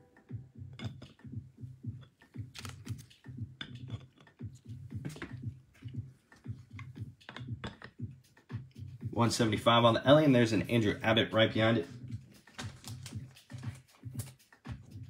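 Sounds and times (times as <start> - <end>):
quiet background music with beat: 0.0 - 15.0
plastic cases clicking and tapping: 2.5 - 3.1.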